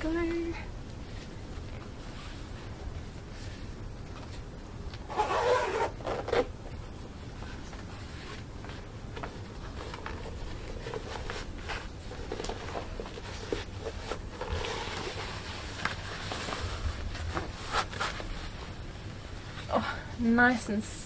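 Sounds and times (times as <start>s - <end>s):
boot rustling and scraping: 5.0s - 6.5s.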